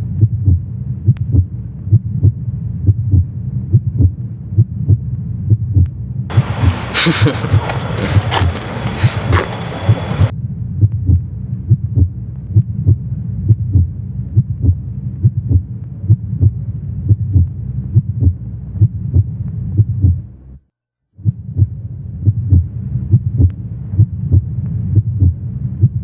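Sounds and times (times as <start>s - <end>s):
outdoor sound: 0.0s - 20.6s
heartbeat thumps: 0.1s - 20.3s, 21.2s - 26.0s.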